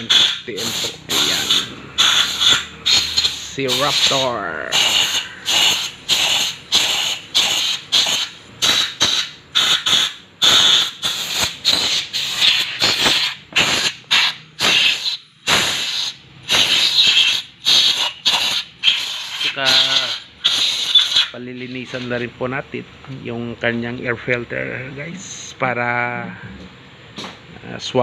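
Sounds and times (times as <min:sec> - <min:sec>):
air tool hissing bursts: 0:00.0 - 0:22.2.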